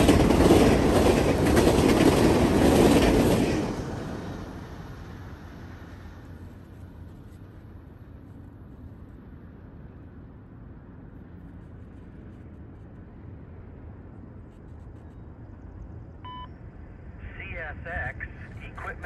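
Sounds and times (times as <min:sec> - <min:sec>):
freight train rumbling: 0:00.0 - 0:14.6.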